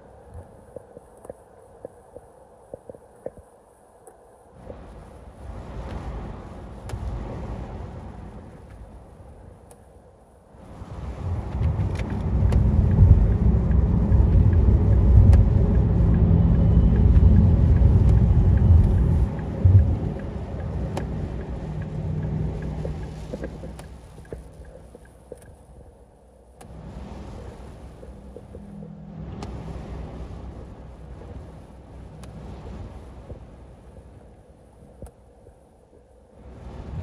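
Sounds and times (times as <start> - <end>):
car cabin road rumble: 0.0 - 37.0
light sharp ticks: 0.3 - 5.0, 6.8 - 7.2, 9.6 - 9.9, 11.5 - 25.8, 26.5 - 26.8, 29.3 - 29.6, 31.2 - 33.5, 34.2 - 36.1.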